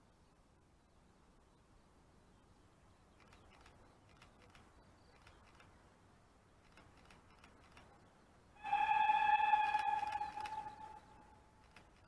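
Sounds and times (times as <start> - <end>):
faint ticks: 3.2 - 5.7, 6.6 - 8.1.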